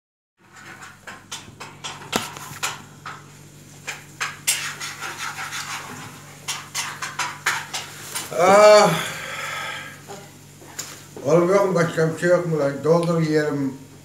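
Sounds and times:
dishes and cutlery clinking: 0.4s - 8.3s
steady low hum: 0.5s - 14.0s.

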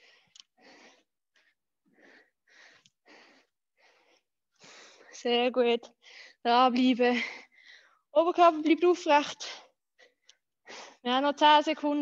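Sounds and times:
person breathing heavily: 0.0s - 5.2s.

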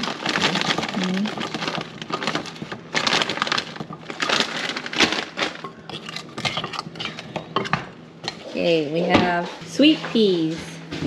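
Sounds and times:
plastic bag crinkling: 0.0s - 7.4s.

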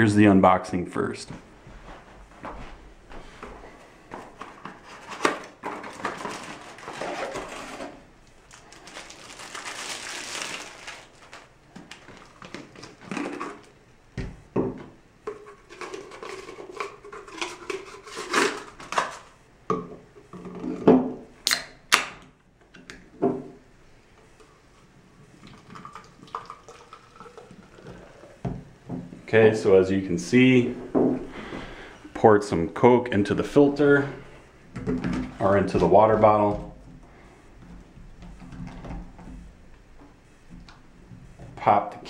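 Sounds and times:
plastic bottle handled and unscrewed: 4.1s - 13.7s, 15.3s - 19.3s
soda pouring into bottle: 25.4s - 28.4s.

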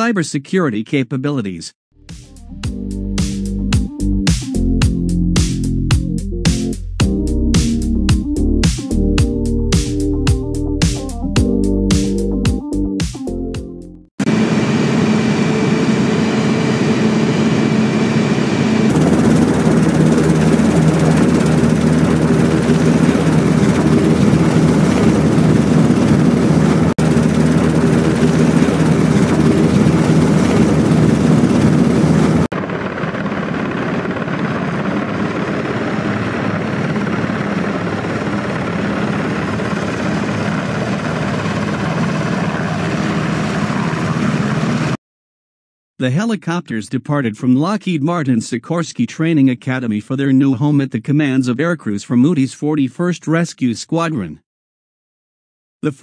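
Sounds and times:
helicopter engines and rotor: 14.2s - 45.0s.

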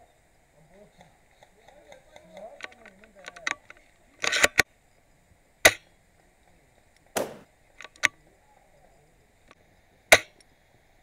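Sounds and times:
rifle bolt rasp and clicks: 4.2s - 4.6s
airsoft rifle shot snap: 7.2s - 7.5s.

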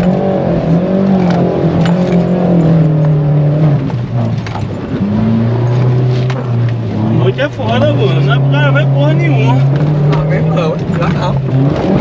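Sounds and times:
car engine revving: 0.0s - 12.0s.

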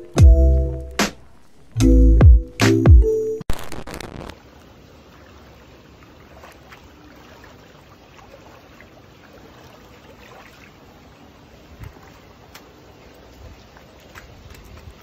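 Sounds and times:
low wash of water: 4.3s - 15.0s
footsteps wading through water: 4.4s - 15.0s.

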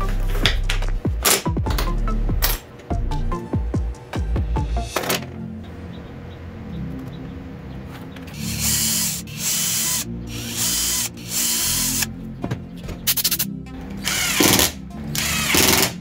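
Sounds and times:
cordless drill drilling into wood: 8.4s - 12.1s, 14.0s - 16.0s.

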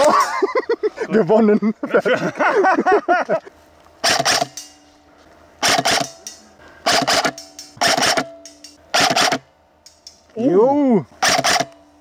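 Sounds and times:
airsoft gun firing bursts: 4.0s - 4.6s, 5.6s - 6.2s, 6.8s - 9.5s, 11.2s - 11.8s.

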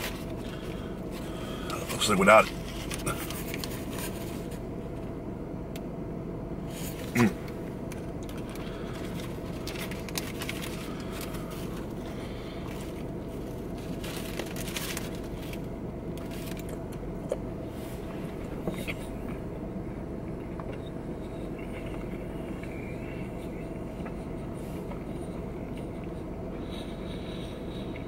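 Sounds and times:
man chewing crispy food: 0.0s - 5.1s, 6.7s - 28.0s
car cabin hum: 0.0s - 28.0s
paper wrapper crinkling: 2.4s - 4.6s, 8.3s - 12.1s, 12.7s - 16.8s.

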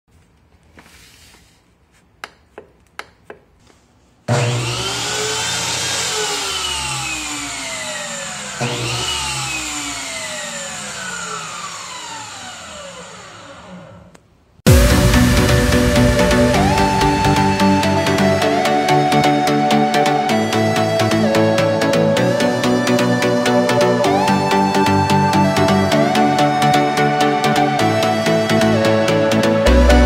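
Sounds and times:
table saw motor: 4.3s - 14.2s.

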